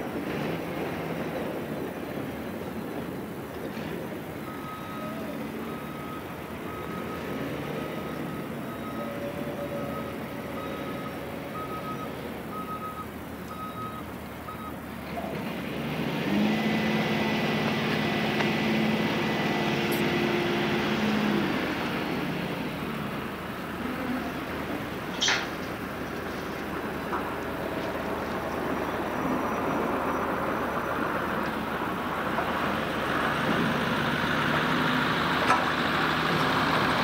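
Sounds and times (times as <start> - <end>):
diesel engine revving: 0.0 - 37.0
truck backup alarm beeping: 4.4 - 14.9.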